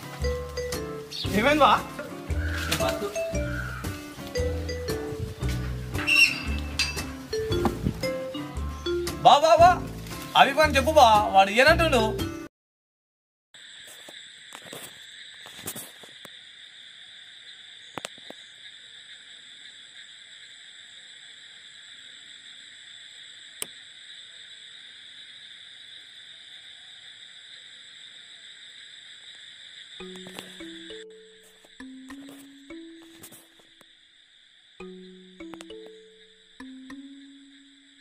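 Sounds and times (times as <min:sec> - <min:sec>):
music notes: 0:00.0 - 0:11.3, 0:30.0 - 0:33.5
insects chorus: 0:00.0 - 0:11.8, 0:13.6 - 0:38.0.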